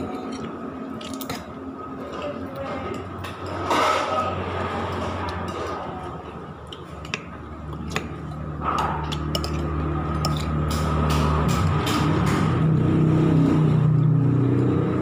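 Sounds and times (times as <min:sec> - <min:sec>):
chewing food: 0:06.6 - 0:10.6.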